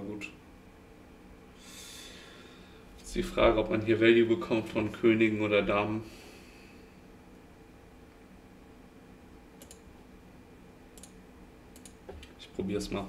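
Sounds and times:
low steady hum: 0.0 - 13.0
computer mouse clicks: 9.6 - 9.9, 10.9 - 12.4.

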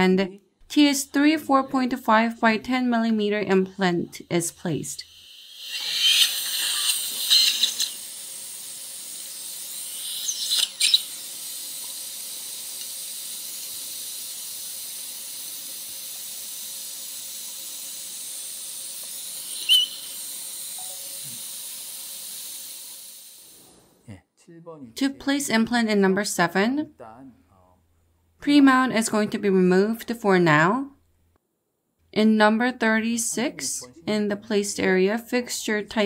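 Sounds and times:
surgical suction hissing: 5.0 - 24.0.

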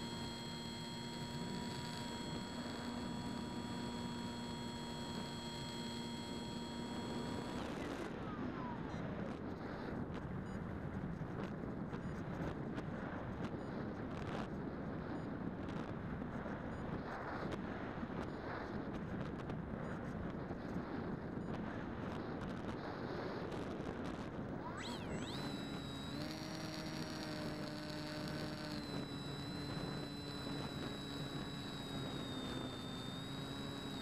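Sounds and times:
electric motor whining: 0.0 - 8.1, 24.6 - 34.0.

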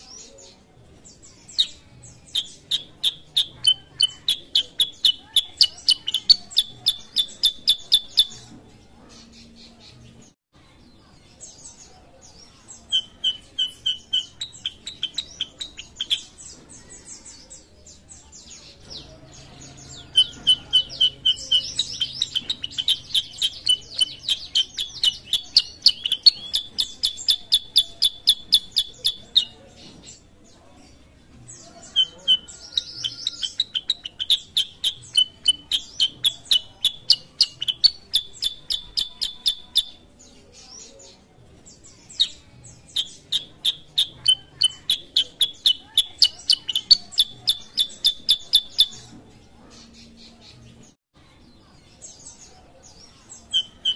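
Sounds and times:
bird chirping rapidly: 1.2 - 8.5, 12.8 - 16.5, 18.8 - 29.6, 31.9 - 40.0, 42.2 - 49.1, 53.4 - 53.9.

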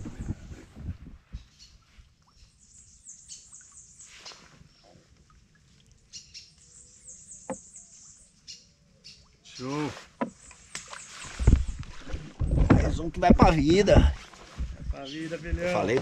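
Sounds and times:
birds chirping faintly: 1.2 - 16.0
soft knocks: 12.3 - 16.0.

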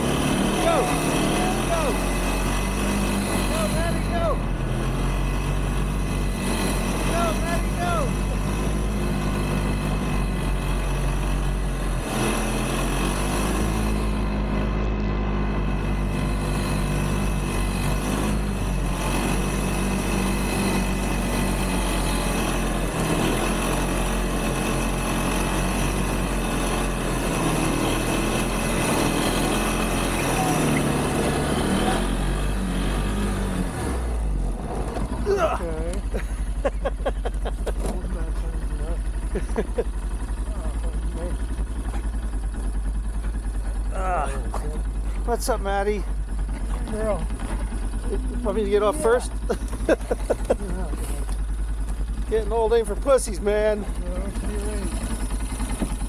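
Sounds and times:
atv engine revving under load: 0.0 - 56.0.

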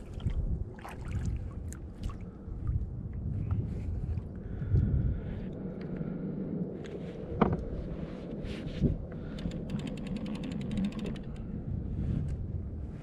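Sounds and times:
sea water: 0.0 - 13.0
wind: 0.0 - 13.0
rapid ticks: 9.3 - 11.4.

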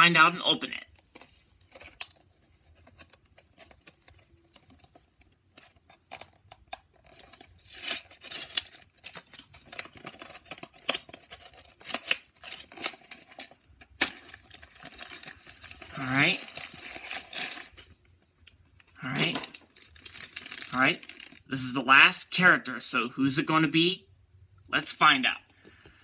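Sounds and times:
foil bag crinkling: 6.9 - 18.1, 18.8 - 21.5.

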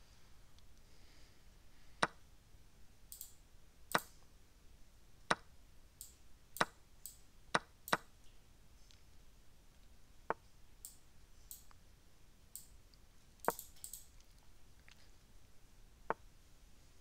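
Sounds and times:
sharp mouse clicks: 3.1 - 4.1, 13.4 - 14.4.

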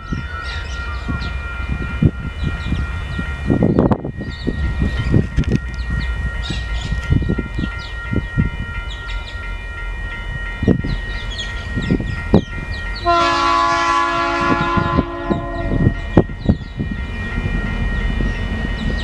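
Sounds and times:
birds chirping: 0.0 - 13.6, 14.5 - 19.0
level crossing warning bell: 0.0 - 19.0
diesel locomotive horn chord: 12.9 - 16.4.

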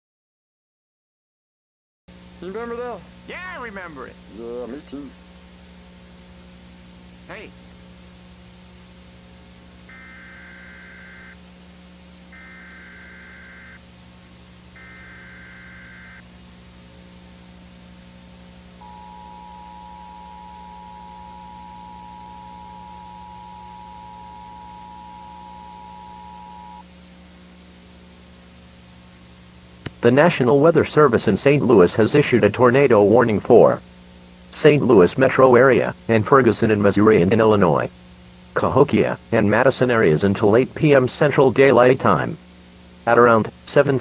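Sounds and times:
low mains hum: 2.1 - 44.0
two-tone attention signal: 9.9 - 11.4, 14.8 - 16.2, 18.8 - 26.8
warbling digital data bursts: 9.9 - 11.4, 12.4 - 13.8, 14.8 - 16.2, 18.8 - 26.8.

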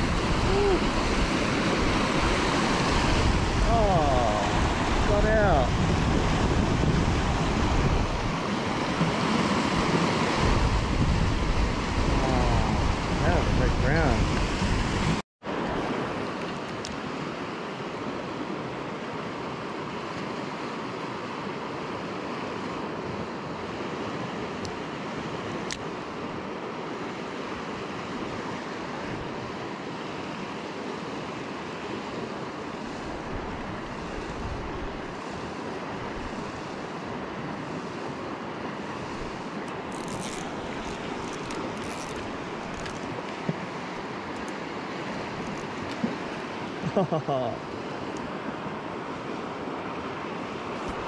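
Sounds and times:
river rushing over rapids: 0.0 - 51.0.

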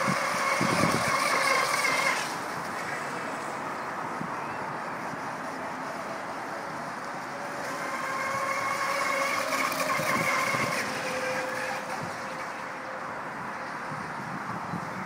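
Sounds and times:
electric motor whining: 0.0 - 2.7, 7.4 - 13.1
wind noise on microphone: 0.0 - 5.7, 7.6 - 15.0.

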